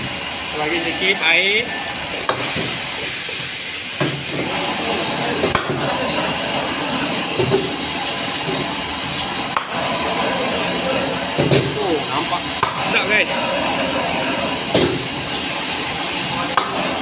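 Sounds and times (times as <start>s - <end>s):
food sizzling in a wok: 0.0s - 17.0s.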